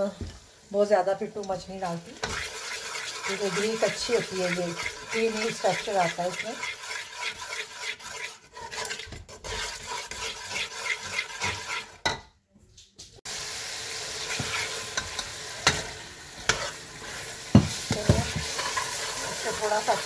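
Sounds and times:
masala sizzling in hot oil: 0.0s - 12.2s, 13.2s - 20.0s
metal spatula scraping a pot: 2.2s - 12.2s, 14.2s - 20.0s.

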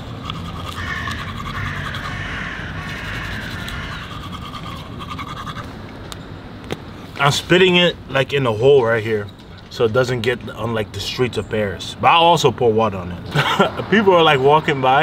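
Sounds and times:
toothbrush scrubbing teeth: 0.0s - 5.7s.

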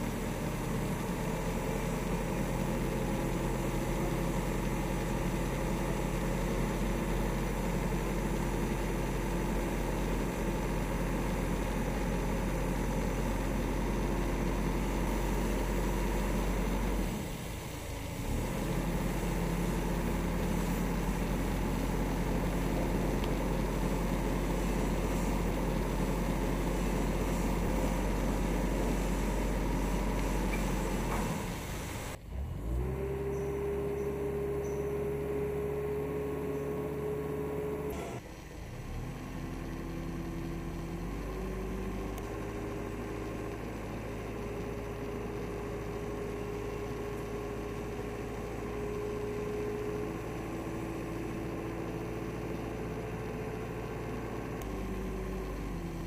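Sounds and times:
truck engine running: 0.0s - 56.0s.

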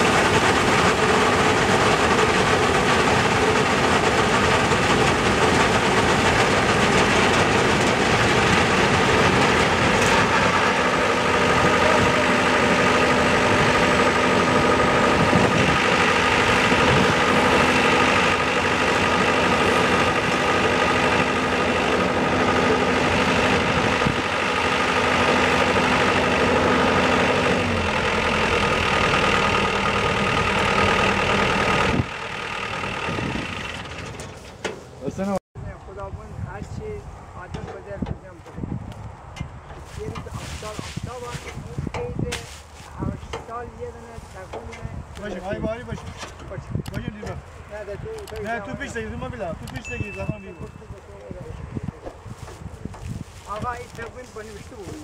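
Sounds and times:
combine harvester running: 0.0s - 55.0s.

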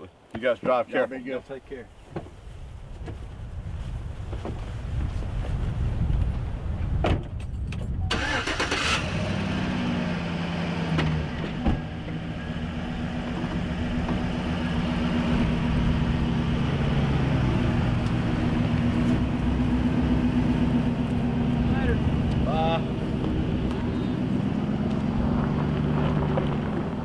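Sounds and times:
pickup engine cranking and idling: 7.4s - 27.0s.

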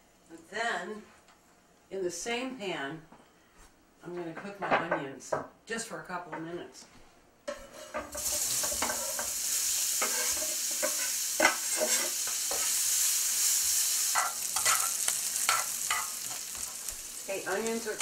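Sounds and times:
onions sizzling in a skillet: 7.5s - 18.0s
spatula scraping a pan: 7.5s - 18.0s.

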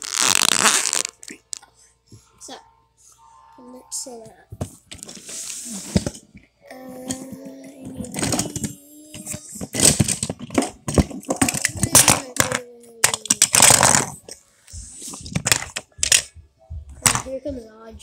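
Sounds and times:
low held tone: 1.8s - 4.6s
plastic toy trains clattering: 8.0s - 14.1s.

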